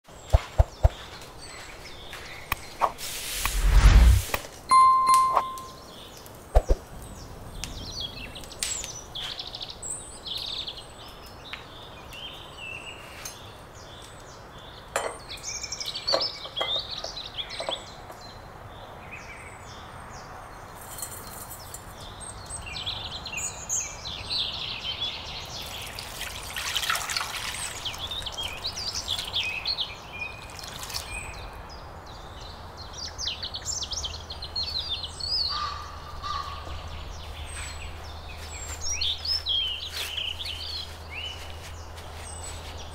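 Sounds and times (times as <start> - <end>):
small birds chirping: 0.1 - 4.1, 4.9 - 42.9
wood fire crackling: 3.0 - 4.4.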